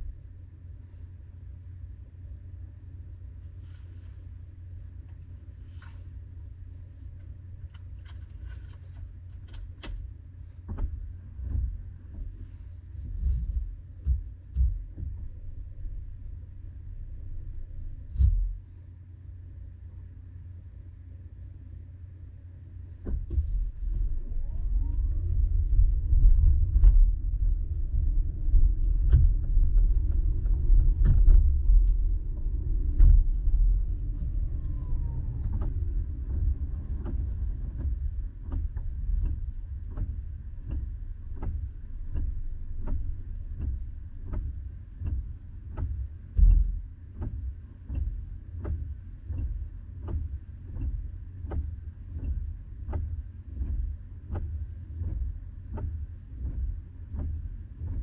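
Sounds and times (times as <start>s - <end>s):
car engine and road rumble: 0.0s - 58.0s
low thump: 17.6s - 18.7s, 23.0s - 40.8s, 45.8s - 47.4s
light rain on car: 22.9s - 58.0s
regular ticking: 25.3s - 58.0s.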